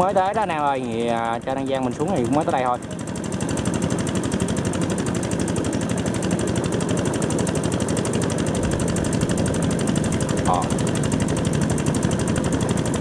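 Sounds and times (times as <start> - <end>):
combine harvester clatter: 0.0 - 13.0.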